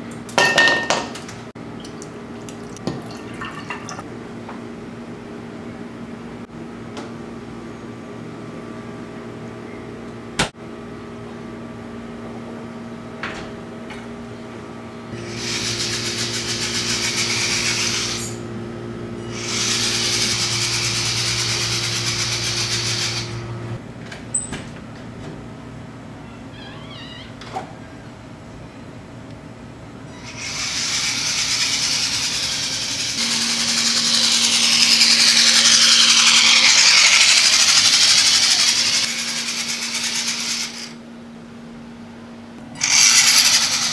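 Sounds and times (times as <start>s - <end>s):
toy car motor and gears: 15.2s - 18.4s, 19.3s - 23.4s, 30.1s - 41.0s, 42.8s - 43.9s.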